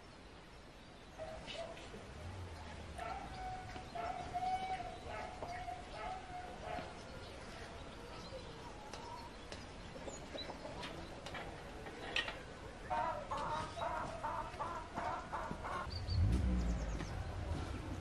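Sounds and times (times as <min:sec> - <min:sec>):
chickens clucking and cackling: 0:09.9 - 0:15.9.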